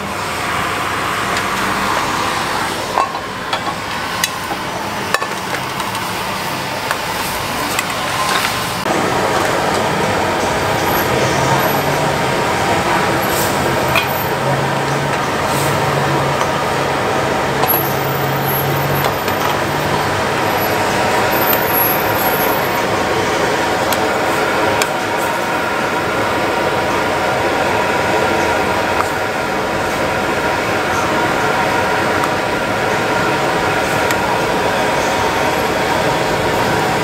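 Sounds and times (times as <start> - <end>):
gas burner roaring: 0.0 - 37.0.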